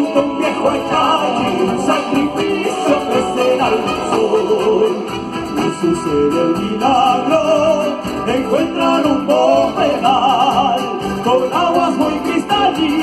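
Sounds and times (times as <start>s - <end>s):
drums: 0.0s - 13.0s
melody with vibrato: 0.0s - 13.0s
strummed guitar: 0.0s - 13.0s.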